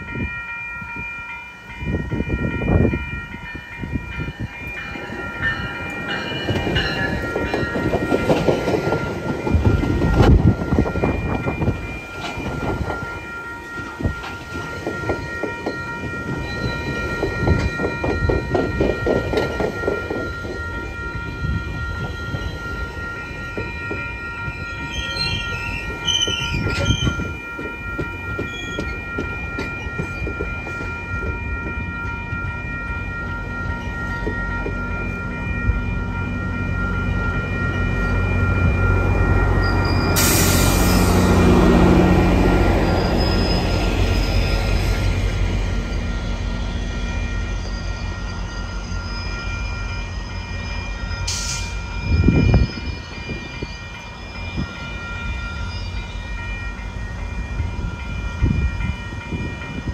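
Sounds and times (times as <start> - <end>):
crossing warning bell ringing: 0.0 - 59.9
high squeal: 24.8 - 27.3, 39.6 - 41.5, 42.6 - 56.2.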